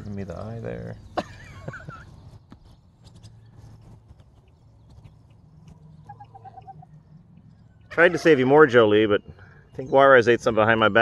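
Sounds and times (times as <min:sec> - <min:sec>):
rapid bird notes: 0:02.1 - 0:10.8.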